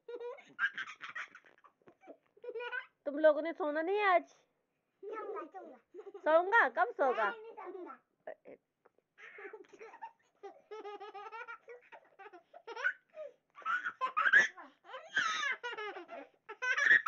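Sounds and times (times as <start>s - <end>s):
toddler girl laughing: 0.1s - 3.0s, 9.2s - 17.0s.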